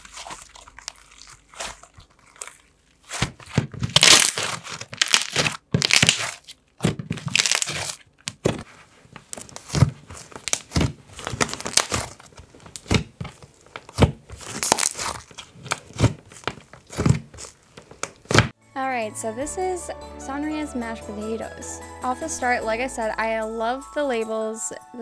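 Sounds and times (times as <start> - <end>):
slime squeezed and poked: 0.0 - 6.5, 13.9 - 18.5.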